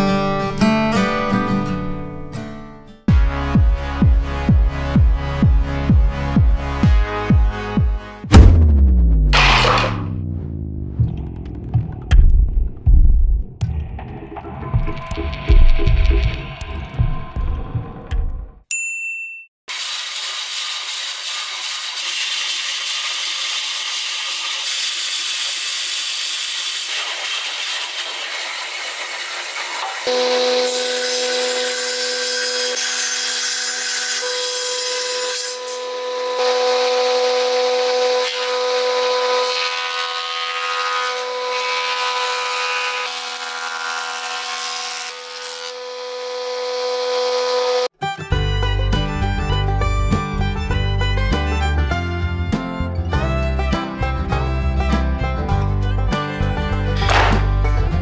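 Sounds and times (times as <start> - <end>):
band saw cutting wood: 9.4 - 10.2, 19.7 - 58.0
planer humming: 57.0 - 57.7.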